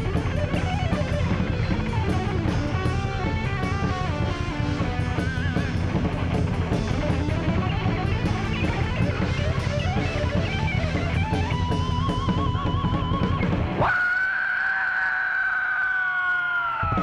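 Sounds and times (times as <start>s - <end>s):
electric guitar lead: 0.0s - 14.0s
heavy metal band playing live: 0.0s - 14.3s, 16.6s - 17.0s.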